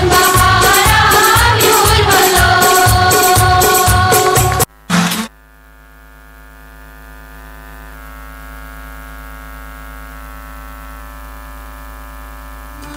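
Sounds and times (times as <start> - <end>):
electrical buzzing hum: 0.0 - 12.9
loud electronic blip: 4.5 - 5.3.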